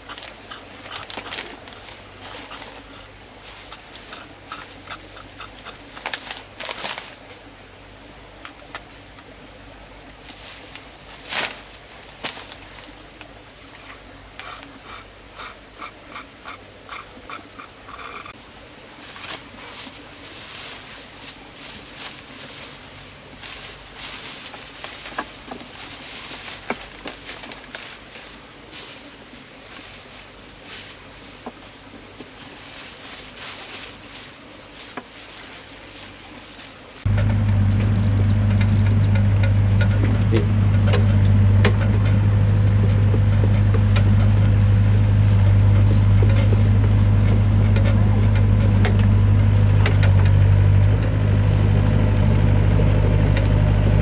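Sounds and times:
loud low engine drone: 37.1s - 54.0s.

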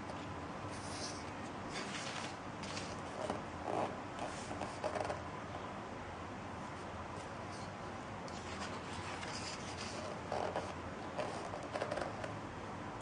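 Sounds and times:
paper page rustling: 0.8s - 3.1s, 8.3s - 10.6s
page flapping down: 1.8s - 3.0s.

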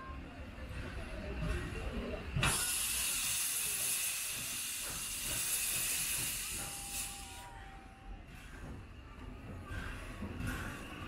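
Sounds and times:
steam hissing from locomotive: 2.4s - 11.0s.

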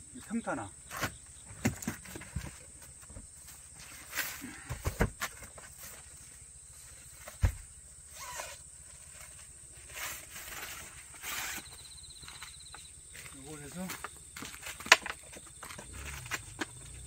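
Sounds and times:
panels rustling and scraping: 0.9s - 12.6s.

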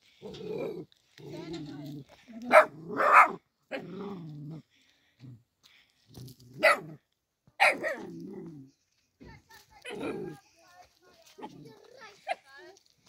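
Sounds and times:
puppy barking: 2.5s - 3.8s, 6.6s - 7.0s, 7.6s - 8.2s.

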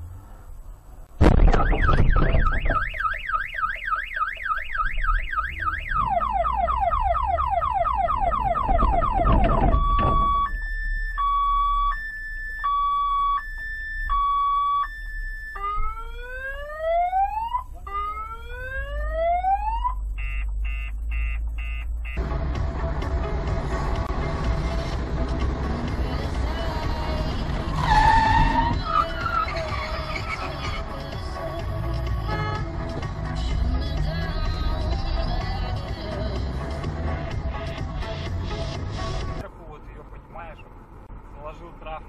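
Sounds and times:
car alarm siren: 1.4s - 22.2s.

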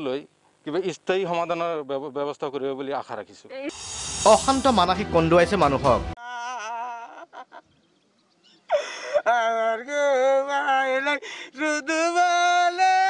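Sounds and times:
man wailing and crying: 6.2s - 7.6s, 8.7s - 13.0s
gasping breaths: 8.7s - 9.3s, 11.2s - 11.6s.

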